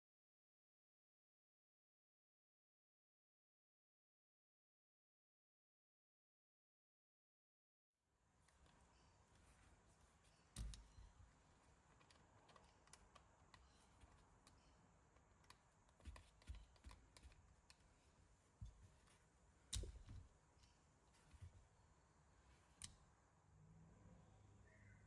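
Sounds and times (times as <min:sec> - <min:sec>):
plastic parts clicking and knocking: 0:10.5 - 0:11.2, 0:11.9 - 0:17.8, 0:19.7 - 0:20.7.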